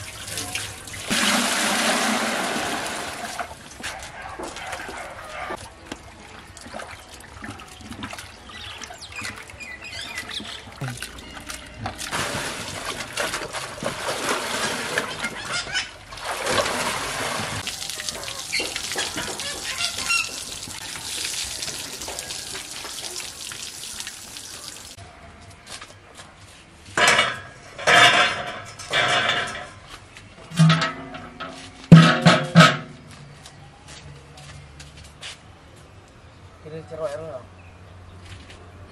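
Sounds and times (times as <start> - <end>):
water streaming into pot: 0.0 - 3.6, 16.3 - 25.0
water sloshing and splashing in pot: 0.0 - 3.8, 5.5 - 25.0.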